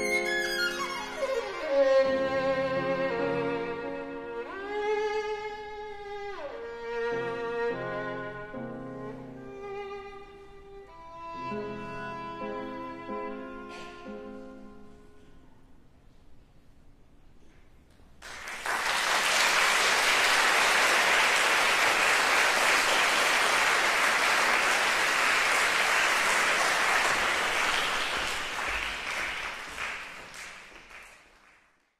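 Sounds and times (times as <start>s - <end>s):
audience applauding: 18.2s - 31.9s.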